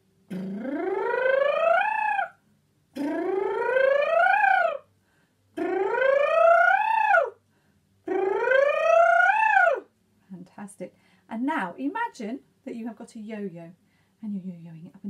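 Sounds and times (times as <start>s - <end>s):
woman singing vocal sirens: 0.4s - 2.3s.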